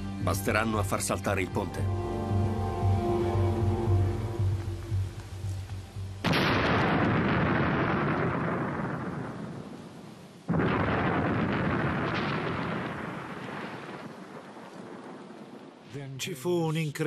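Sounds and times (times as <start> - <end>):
explosions with rumble: 6.2 - 9.8, 10.5 - 15.6.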